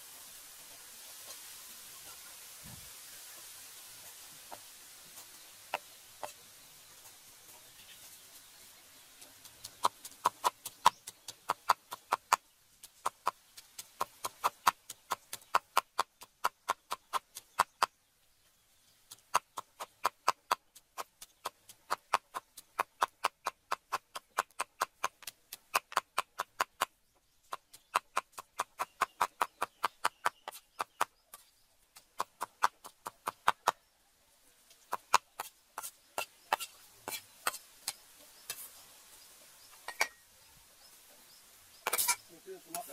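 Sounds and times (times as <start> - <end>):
cleaver chopping on wooden block: 9.4 - 17.9, 19.1 - 31.2.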